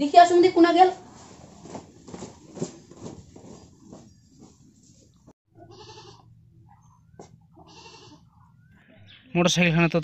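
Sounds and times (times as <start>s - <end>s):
goat bleating: 5.5s - 6.4s, 7.5s - 8.4s.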